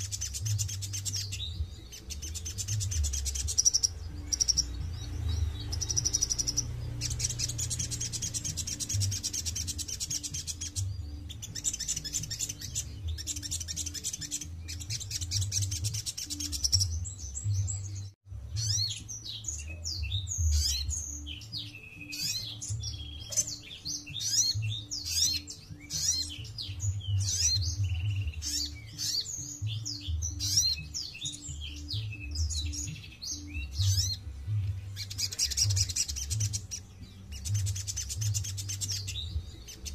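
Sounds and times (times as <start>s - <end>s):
bird trilling: 0.0s - 17.3s
bird chirps and twitters: 0.0s - 39.9s.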